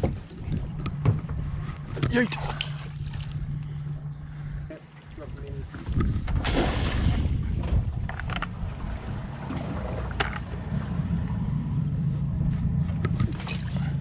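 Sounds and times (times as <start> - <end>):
outboard motor idling: 0.0 - 6.5, 7.2 - 14.0
wind on microphone: 5.3 - 14.0
splash in water: 6.2 - 7.4.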